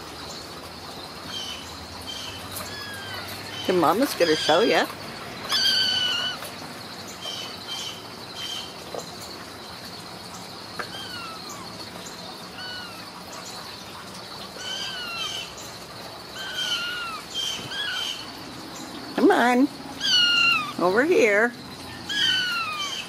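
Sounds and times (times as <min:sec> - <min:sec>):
kittens mewing: 0:05.5 - 0:06.5, 0:10.8 - 0:11.7, 0:12.5 - 0:13.1, 0:16.4 - 0:18.2, 0:20.0 - 0:20.9, 0:22.1 - 0:23.0.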